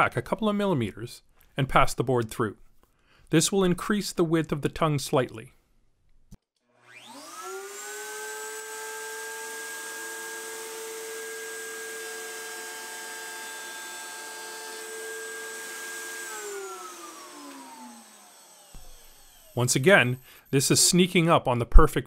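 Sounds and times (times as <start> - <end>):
router whining: 6.7 - 21.0.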